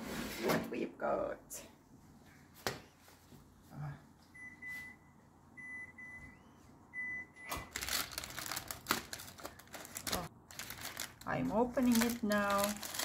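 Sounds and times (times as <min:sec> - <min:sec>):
baking paper crinkling: 0:07.7 - 0:13.0.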